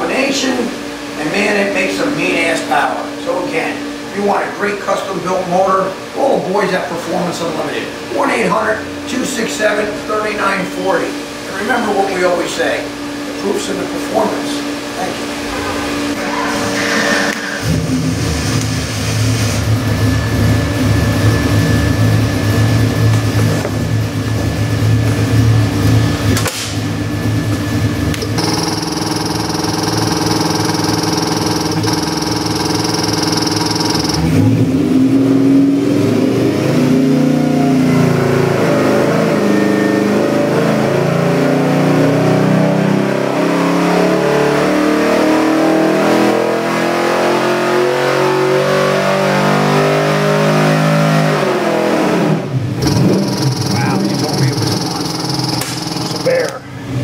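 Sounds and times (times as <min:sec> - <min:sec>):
engine revving on dyno: 0:28.1 - 0:57.0.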